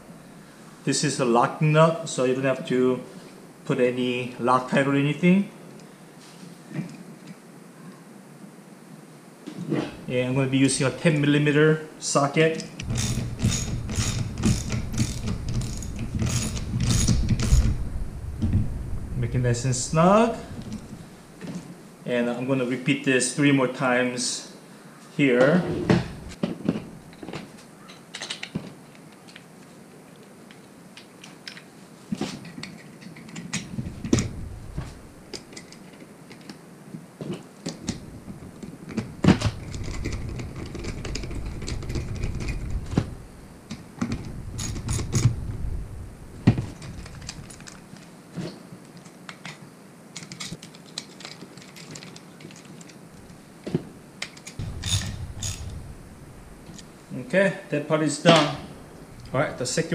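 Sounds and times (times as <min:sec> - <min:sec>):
small parts clicking and clattering: 0:12.6 - 0:17.8, 0:27.9 - 0:29.7, 0:30.5 - 0:31.7, 0:32.4 - 0:34.3, 0:35.3 - 0:36.6, 0:38.9 - 0:43.0, 0:43.7 - 0:45.4, 0:46.6 - 0:48.1, 0:48.9 - 0:53.4, 0:54.2 - 0:55.8
socket wrench ratcheting: 0:12.8 - 0:17.8.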